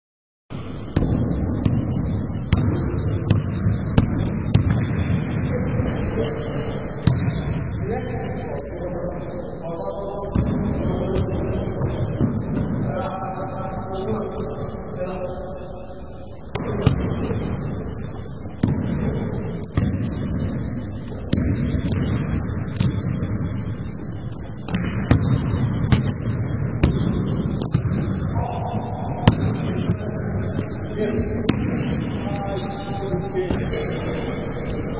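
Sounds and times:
basketball thudding with echo: 0.6s - 7.9s, 10.2s - 13.1s, 16.4s - 32.6s, 33.4s - 34.9s
sneaker squeaks: 1.0s - 5.1s, 5.8s - 9.0s, 19.5s - 34.0s
basketball bouncing on hardwood floor: 18.6s - 19.1s.

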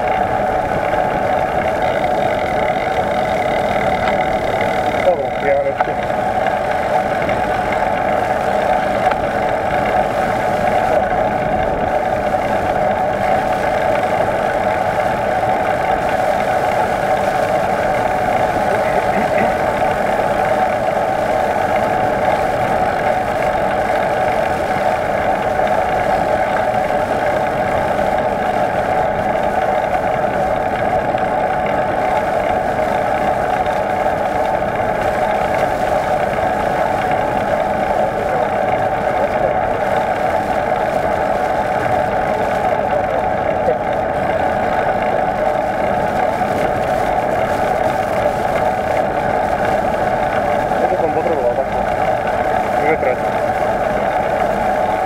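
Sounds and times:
bike humming drone: 0.0s - 55.0s.

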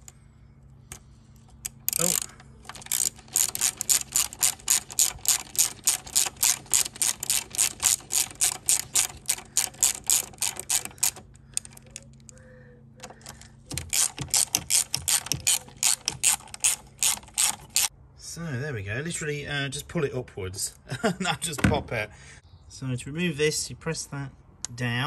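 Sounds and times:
hand ratchet clicking: 1.6s - 12.4s, 13.0s - 17.9s.

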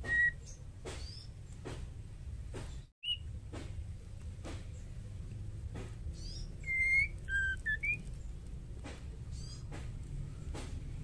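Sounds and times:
bird whistling clear notes: 6.6s - 8.0s.

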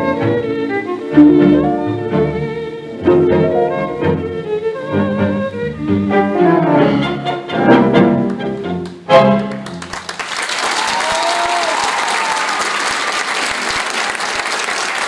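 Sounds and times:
tango orchestra with strings: 0.0s - 10.1s
audience applause: 8.3s - 15.0s.

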